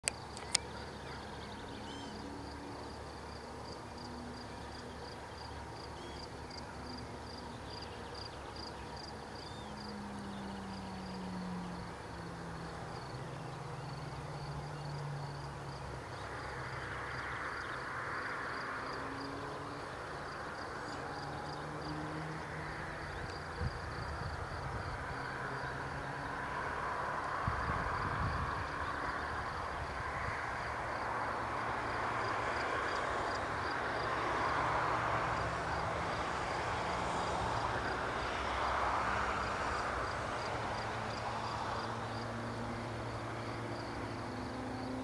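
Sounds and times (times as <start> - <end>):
distant engine drone: 0.0 - 45.0
insect chirping: 0.0 - 45.0.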